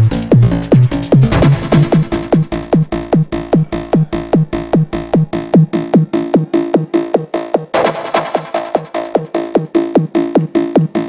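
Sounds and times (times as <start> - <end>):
hard trance music: 0.0 - 11.0
fast kick drum: 0.4 - 5.7, 7.8 - 9.5.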